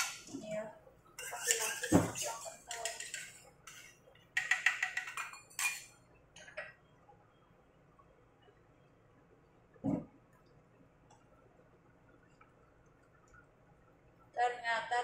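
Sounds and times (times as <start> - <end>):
metal spoon scraping a bowl: 1.2 - 6.0.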